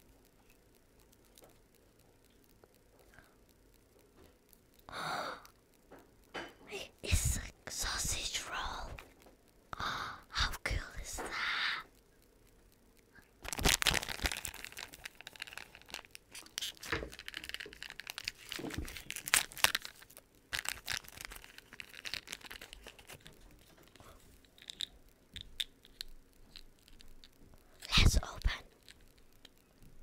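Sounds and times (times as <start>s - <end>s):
plastic packaging crinkling and tearing: 13.4s - 29.6s.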